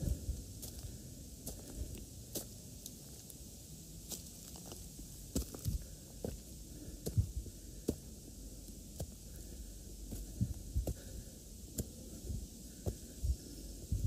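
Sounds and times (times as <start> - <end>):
footsteps walking: 0.0 - 3.4, 4.0 - 13.5.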